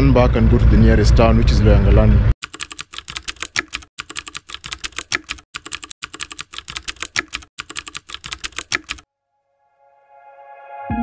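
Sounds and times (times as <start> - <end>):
keyboard typing clicks: 2.4 - 9.1.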